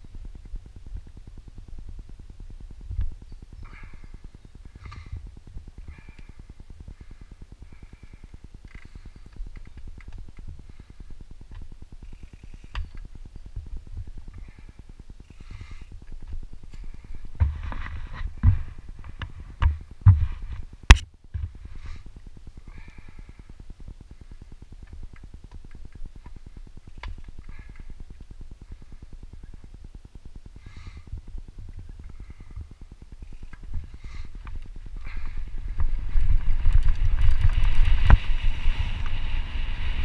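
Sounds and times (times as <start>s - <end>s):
bike knocking and rattling: 2.8s - 22.0s, 31.7s - 40.0s
bike hub ratcheting buzz: 5.8s - 13.7s, 32.1s - 35.4s.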